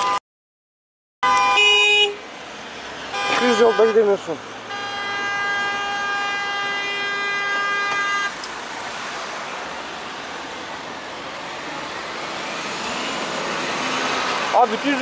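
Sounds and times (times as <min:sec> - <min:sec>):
vehicle horn steady note: 0:01.2 - 0:02.2, 0:03.1 - 0:08.4
traffic hiss and running engines: 0:01.3 - 0:15.0.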